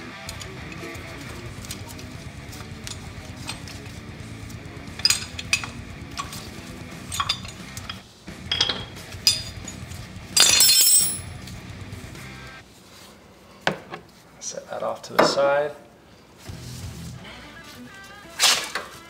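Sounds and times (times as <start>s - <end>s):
guitar music: 0.0s - 10.4s
metal rattle: 4.8s - 11.3s
metal clinks and knocks: 4.8s - 11.4s.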